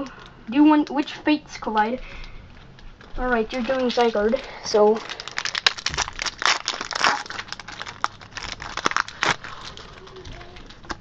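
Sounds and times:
foil wrapper tearing and crinkling: 3.5s - 11.0s.

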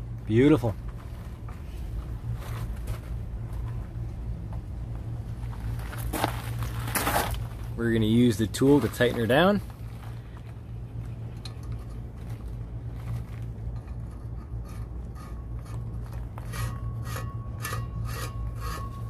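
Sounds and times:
steady low hum: 0.0s - 19.0s
metallic rasping strokes: 13.7s - 19.0s.

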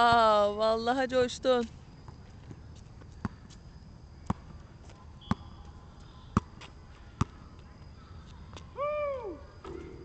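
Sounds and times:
basketball bouncing on asphalt: 0.0s - 0.5s, 1.1s - 7.6s.

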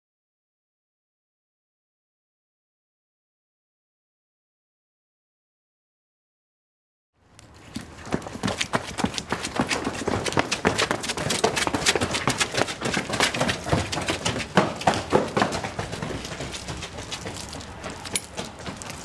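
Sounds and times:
hard shoes running on wet pavement: 7.5s - 19.0s.

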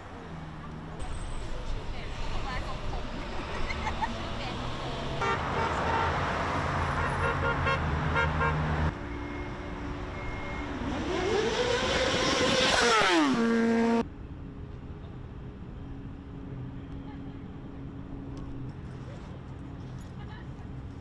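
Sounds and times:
cars passing: 0.0s - 14.5s
steady horn tone: 5.2s - 14.0s
vehicle engine passing by: 10.1s - 14.0s.

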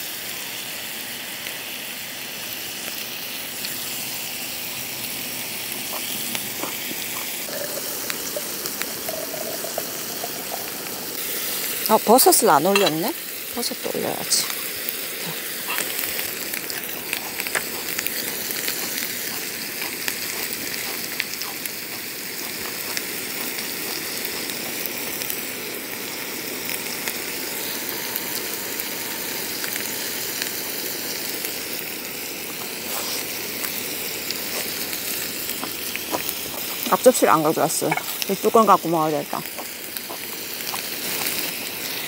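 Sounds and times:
meat sizzling on a grill pan: 0.0s - 42.0s
fat popping and crackling: 15.3s - 25.3s, 32.5s - 41.6s.

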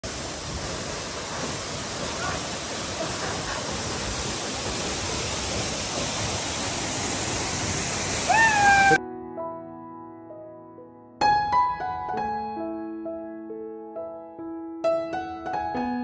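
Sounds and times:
waterfall rushing: 0.0s - 9.0s.

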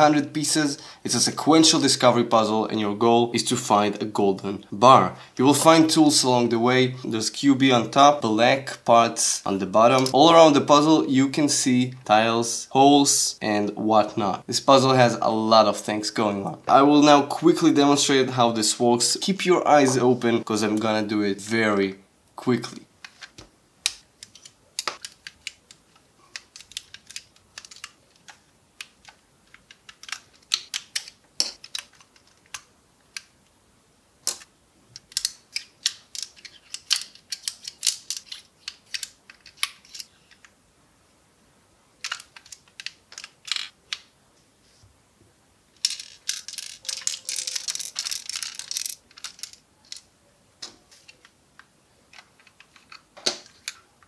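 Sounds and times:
plastic bricks clicking: 23.0s - 33.3s, 34.2s - 40.6s, 42.0s - 44.1s, 45.8s - 50.1s, 51.0s - 53.8s.

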